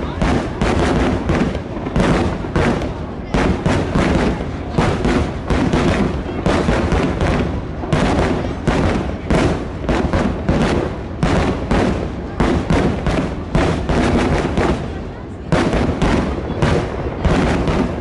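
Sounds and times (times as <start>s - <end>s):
firework shells booming: 0.0s - 18.0s.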